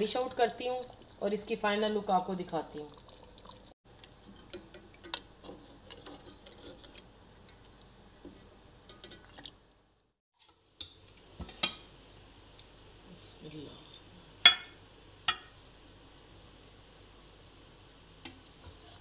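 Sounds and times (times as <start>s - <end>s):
ladle scraping a cooking pot: 5.4s - 7.1s, 18.5s - 19.0s.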